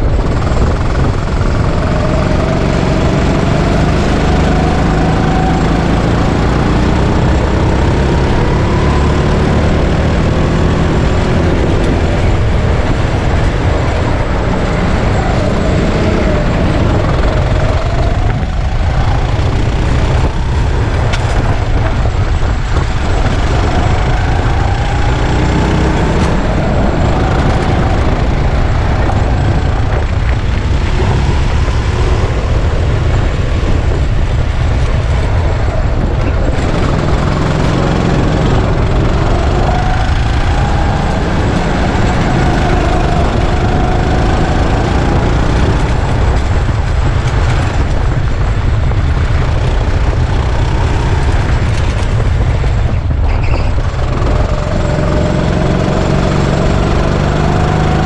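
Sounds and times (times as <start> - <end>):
go-kart engine revving: 0.0 - 58.0
low rumble: 0.0 - 58.0.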